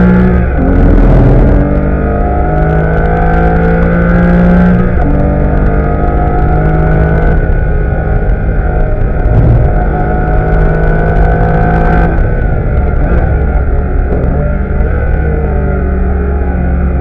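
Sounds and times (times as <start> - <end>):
car engine revving at full throttle: 0.0 - 17.0.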